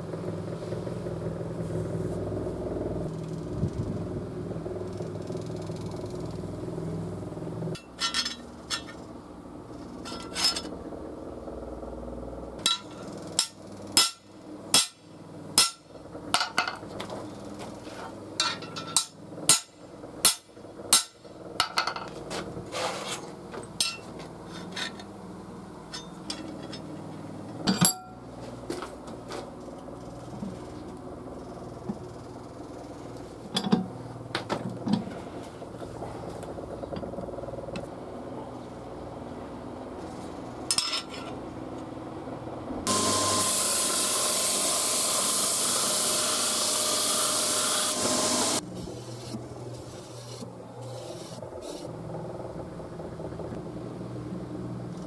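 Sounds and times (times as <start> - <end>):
drill press humming: 42.9 - 53.6.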